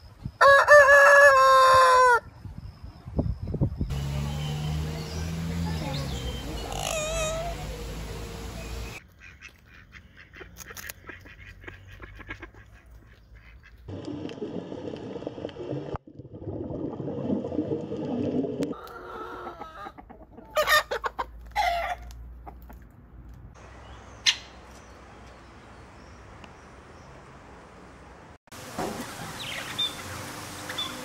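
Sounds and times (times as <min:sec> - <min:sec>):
chicken calls: 0:00.4 - 0:02.3, 0:06.4 - 0:13.8, 0:18.6 - 0:22.8
parrots calling: 0:05.9 - 0:09.0.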